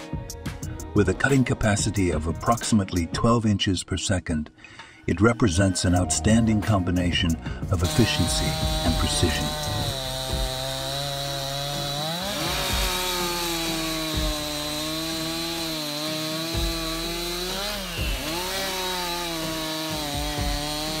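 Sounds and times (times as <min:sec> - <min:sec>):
chainsaw cutting log: 0:07.8 - 0:21.0.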